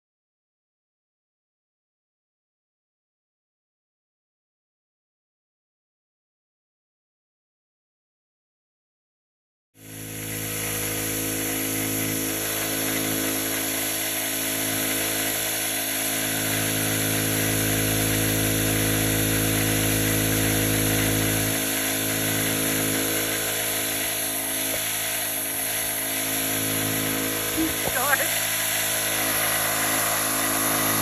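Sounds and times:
machine motor humming and whining: 9.8 - 31.0.

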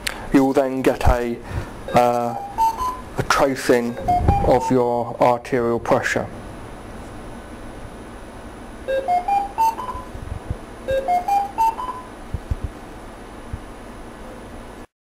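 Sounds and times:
patient monitor alarm beeps: 1.9 - 5.0, 8.9 - 10.1, 10.9 - 12.2.

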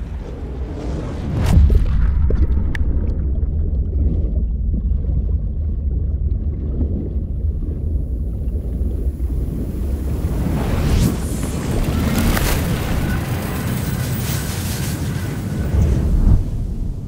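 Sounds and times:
deep rumbling drone: 0.0 - 17.0
sharp crackles: 10.9 - 16.1.

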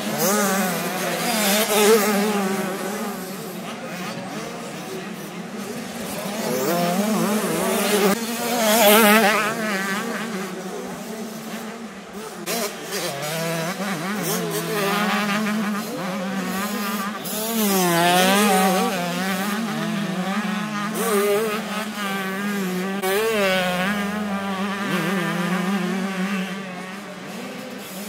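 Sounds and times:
motocross bikes buzzing engines: 0.0 - 28.0.

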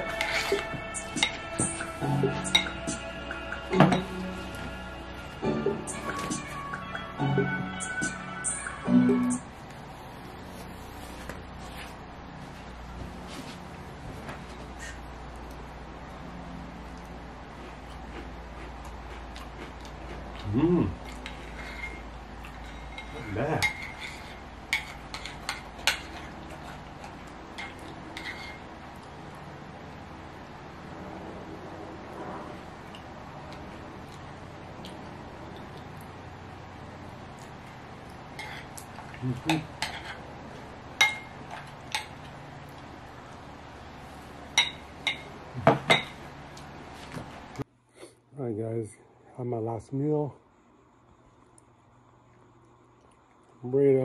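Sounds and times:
steady low hum: 0.0 - 54.0
metal spoon scraping ceramic bowl: 0.1 - 1.7, 22.6 - 26.2, 27.6 - 28.7
spoon clinking against bowl: 2.4 - 2.8, 41.0 - 42.1, 44.6 - 46.2
short hum-like voice: 20.4 - 21.0, 39.1 - 39.8.

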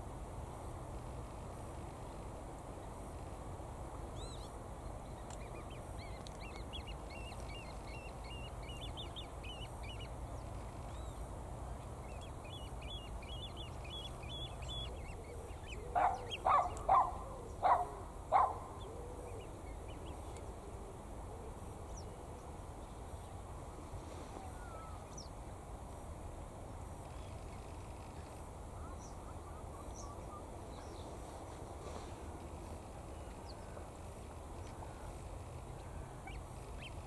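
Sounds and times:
birds chirping and twittering: 4.2 - 20.5, 34.6 - 37.0.

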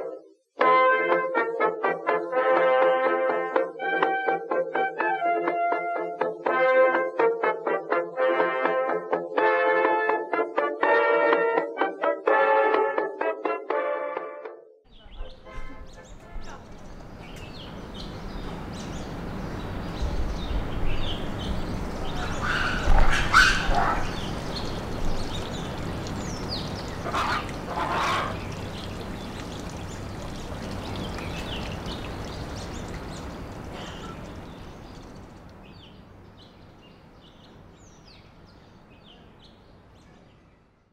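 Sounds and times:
birds chirping: 14.9 - 40.8.

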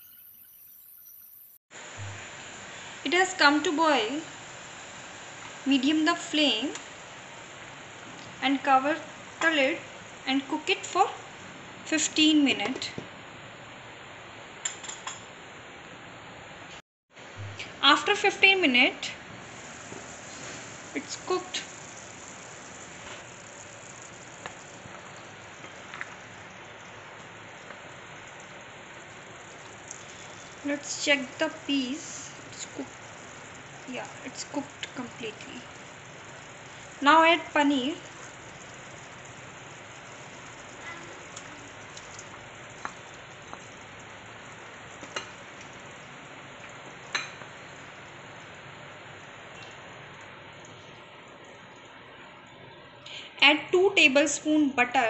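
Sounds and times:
curry bubbling in a pan: 18.2 - 52.5.

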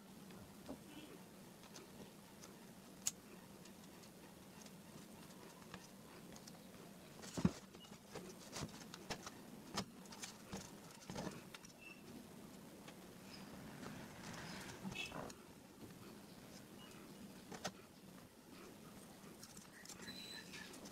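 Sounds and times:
faint steady hum: 0.0 - 20.9
fingers handling circuit board: 1.6 - 11.9, 19.0 - 20.9.

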